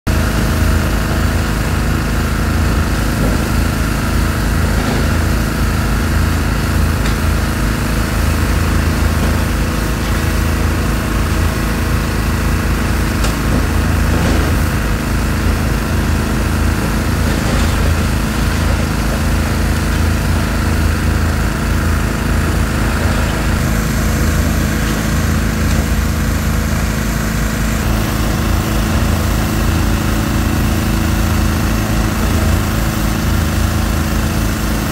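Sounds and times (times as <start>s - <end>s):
excavator diesel engine droning: 0.1s - 34.9s.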